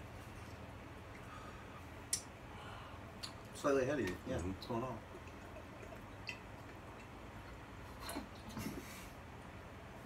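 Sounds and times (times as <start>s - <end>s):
liquid sloshing in bottles: 4.0s - 8.8s
people gulping from bottles: 5.0s - 8.8s.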